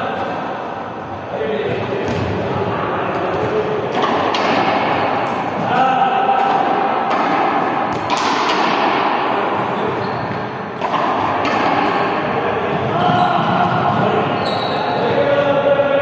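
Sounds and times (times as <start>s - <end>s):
balls bouncing on gym floor: 1.6s - 2.5s, 3.1s - 15.2s
voices in background: 11.4s - 16.0s.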